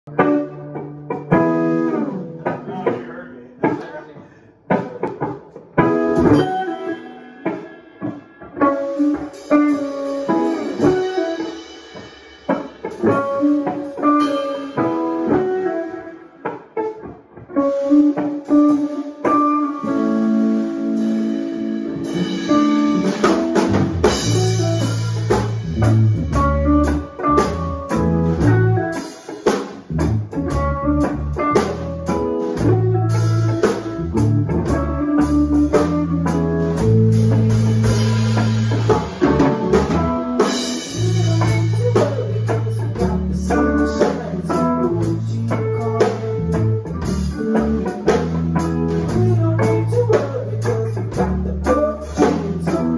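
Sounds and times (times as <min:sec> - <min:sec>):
electric guitars playing: 0:00.0 - 0:52.9
drum kit playing: 0:00.1 - 0:04.0, 0:04.7 - 0:52.9
electric bass: 0:04.7 - 0:06.9, 0:08.4 - 0:16.0, 0:17.5 - 0:52.9.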